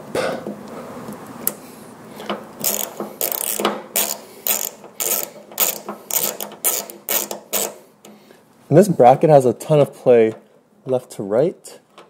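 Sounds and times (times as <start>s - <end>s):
ratchet wrench clicking: 2.6s - 8.2s.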